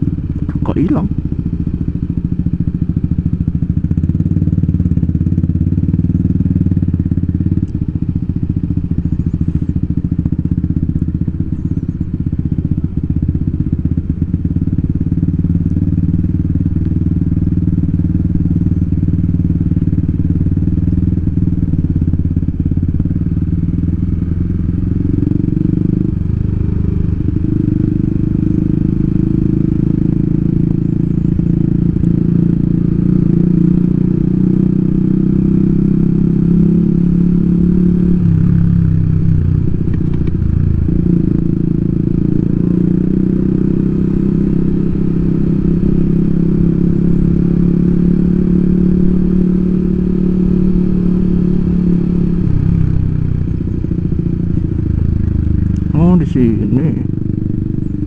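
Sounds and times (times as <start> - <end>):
scooter engine running: 0.0 - 58.0.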